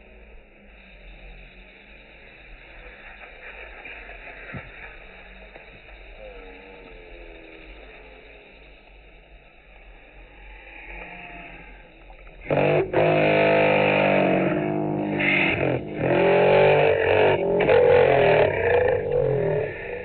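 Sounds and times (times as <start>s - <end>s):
loud distorted music: 12.5s - 19.1s.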